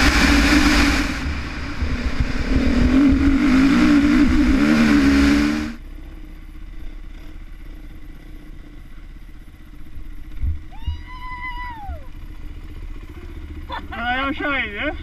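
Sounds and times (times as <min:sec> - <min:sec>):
low thumps: 0:00.0 - 0:05.8, 0:10.3 - 0:11.1
wind rush: 0:00.0 - 0:05.8
dirt bike engine: 0:00.0 - 0:15.0.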